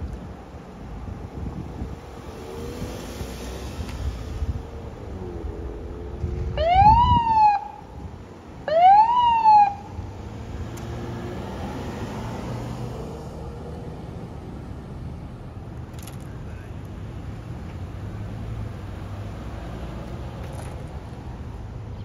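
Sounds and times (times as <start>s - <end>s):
vehicle rumble: 0.0s - 22.0s
emergency vehicle siren whoops: 6.4s - 7.9s, 8.6s - 10.0s.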